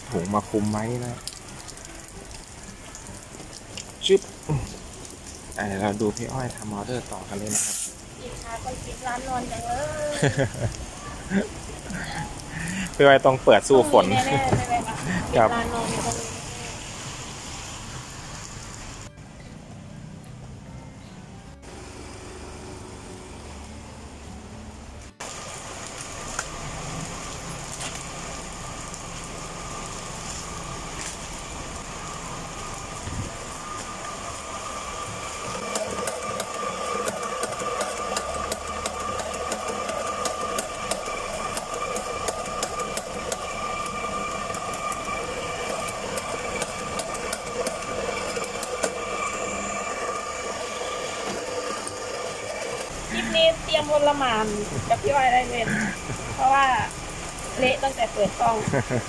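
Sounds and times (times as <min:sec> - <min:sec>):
electric coffee grinder running: 0:13.6 - 0:16.4, 0:32.8 - 0:54.1.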